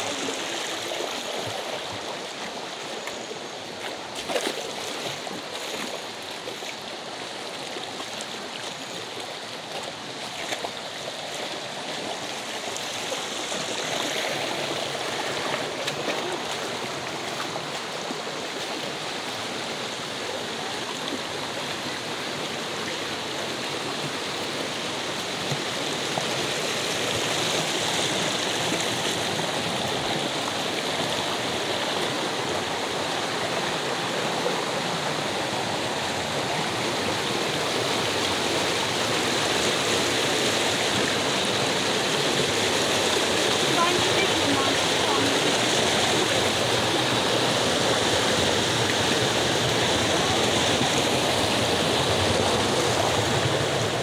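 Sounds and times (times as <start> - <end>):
stream rushing over rocks: 0.0 - 54.0.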